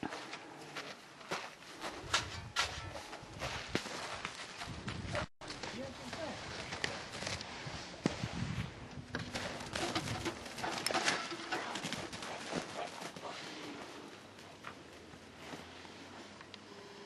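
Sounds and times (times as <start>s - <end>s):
footsteps crunching in snow: 0.0s - 10.4s.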